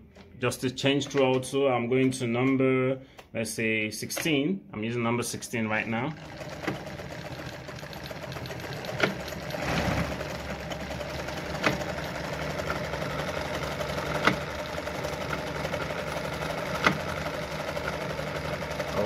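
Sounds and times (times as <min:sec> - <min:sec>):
sewing machine running: 0:05.5 - 0:19.0.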